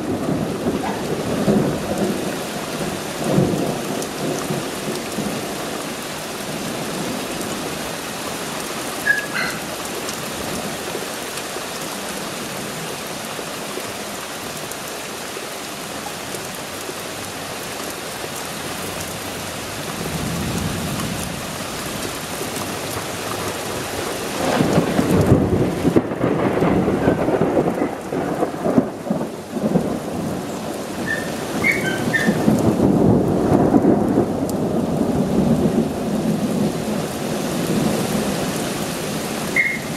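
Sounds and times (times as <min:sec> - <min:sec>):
rolling thunder: 0:00.0 - 0:05.5, 0:24.2 - 0:39.9
steady rain: 0:00.0 - 0:39.9.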